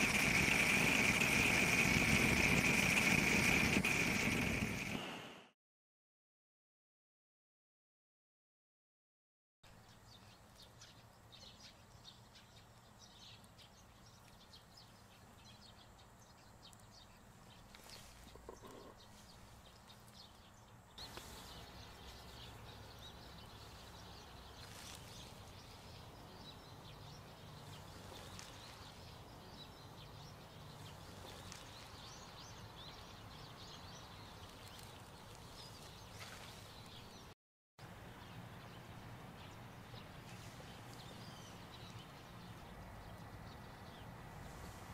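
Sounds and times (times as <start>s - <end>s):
small bird chirps: 9.8s - 37.3s.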